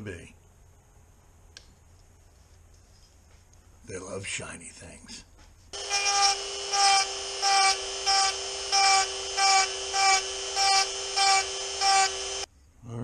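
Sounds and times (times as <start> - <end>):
handheld power tool whining on metal: 5.8 - 12.5.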